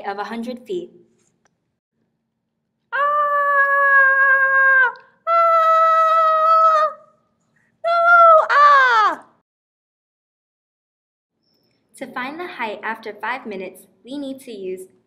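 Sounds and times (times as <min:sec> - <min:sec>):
high-pitched voice wailing: 0:03.0 - 0:07.1.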